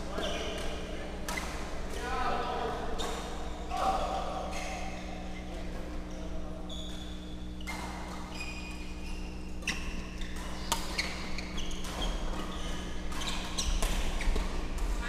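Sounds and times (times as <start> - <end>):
low hall hum: 0.0 - 15.0
shoe squeaks on court: 6.6 - 14.6
racket hitting shuttlecock: 9.6 - 15.0.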